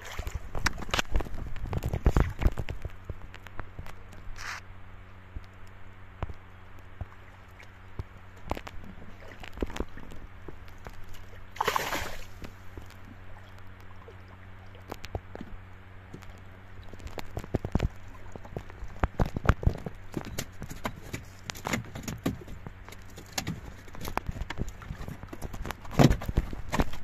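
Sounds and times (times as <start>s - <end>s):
water splash: 0.0s - 2.7s, 10.8s - 12.6s
water sloshing and dripping: 0.0s - 3.9s, 7.0s - 27.0s.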